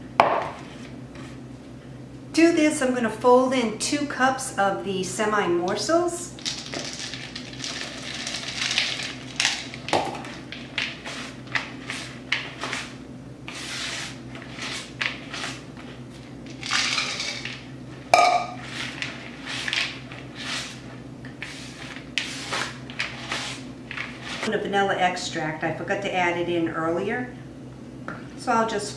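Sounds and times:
chocolate chips poured into a bowl: 0:06.4 - 0:09.8, 0:16.5 - 0:17.6
spatula scraping a bowl: 0:10.2 - 0:17.5, 0:18.5 - 0:24.5.

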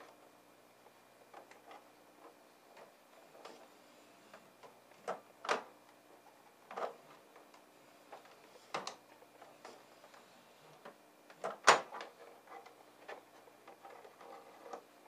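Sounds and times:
clicks and knocks of plastic parts: 0:04.3 - 0:05.7, 0:06.6 - 0:14.8.

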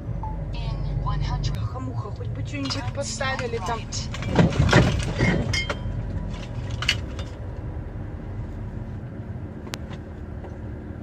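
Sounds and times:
truck diesel engine running: 0:00.0 - 0:11.0
knocks and rattles: 0:02.4 - 0:07.4.

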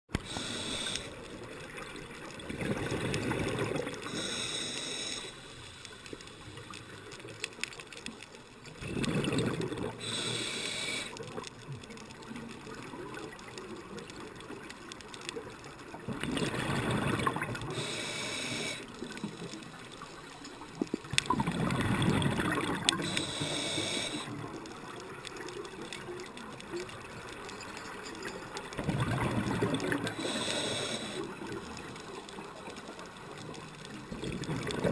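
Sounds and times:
regulator inhale hiss: 0:00.2 - 0:01.4, 0:04.0 - 0:06.8, 0:10.0 - 0:11.2, 0:17.6 - 0:19.6, 0:23.0 - 0:24.5, 0:30.0 - 0:32.2
exhaled bubbles rumbling underwater: 0:00.2 - 0:04.4, 0:08.7 - 0:10.3, 0:15.8 - 0:27.4, 0:28.7 - 0:34.9.

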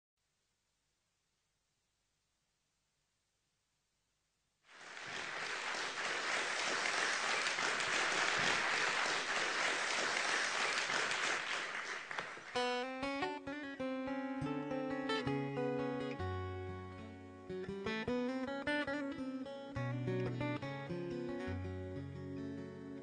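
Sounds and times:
audience applause: 0:04.7 - 0:12.7
strummed acoustic guitar: 0:12.6 - 0:23.0.

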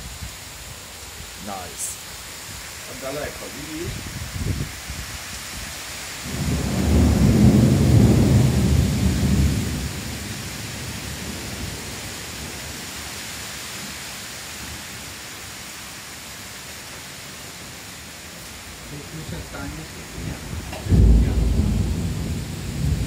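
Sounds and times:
heavy rain hissing: 0:00.0 - 0:23.0
low rumble of thunder: 0:06.2 - 0:12.8, 0:19.1 - 0:23.0.

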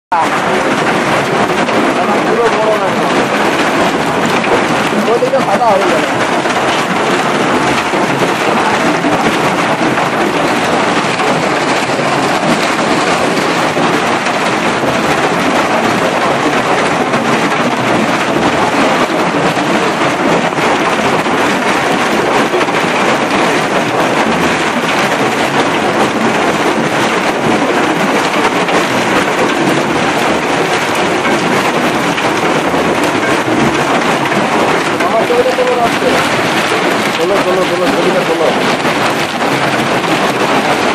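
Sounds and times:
hail clattering on rails and stones: 0:00.1 - 0:40.9.

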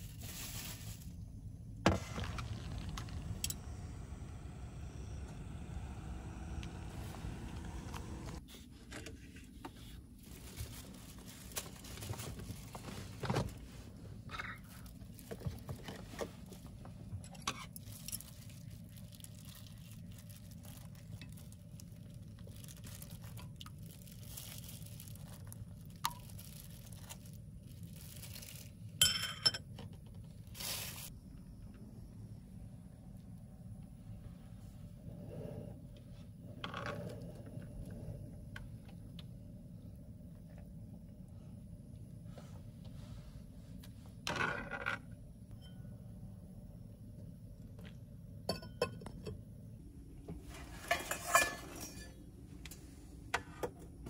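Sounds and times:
gas burner rumble: 0:00.9 - 0:08.4.

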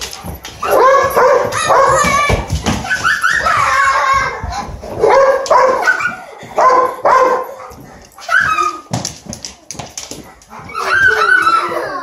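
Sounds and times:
dog barking excitedly: 0:00.6 - 0:04.2, 0:04.8 - 0:08.8.

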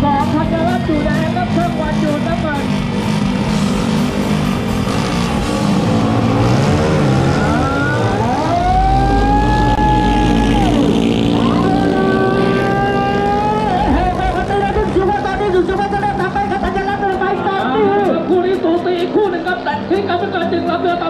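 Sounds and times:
racing boat engines revving: 0:00.0 - 0:21.0.

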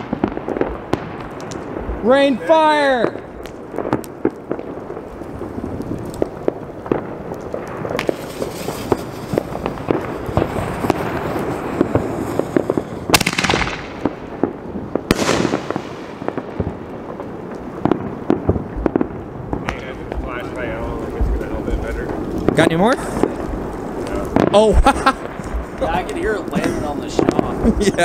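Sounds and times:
fireworks crackling pops: 0:00.0 - 0:28.0
loud firework bangs: 0:00.0 - 0:28.0.

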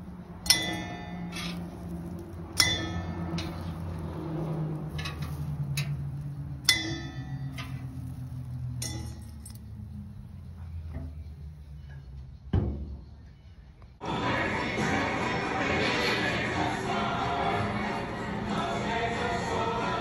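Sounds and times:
metal tongs clinking on steel: 0:00.4 - 0:04.0, 0:04.8 - 0:09.9.

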